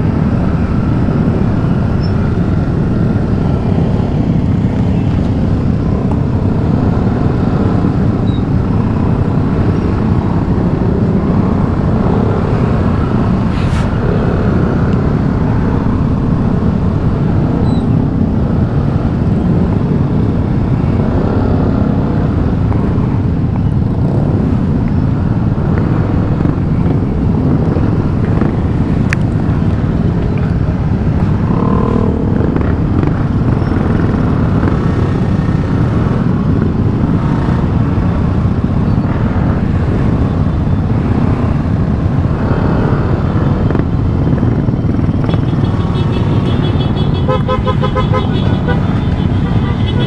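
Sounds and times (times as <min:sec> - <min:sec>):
motorcycles idling: 0:43.6 - 0:50.0.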